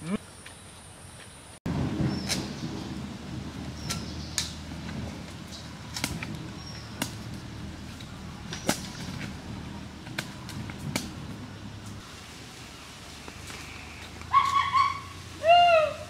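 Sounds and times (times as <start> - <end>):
sticks clicking in fire ashes: 3.8 - 9.4, 10.0 - 12.0
footsteps on dry leaves: 4.0 - 15.7.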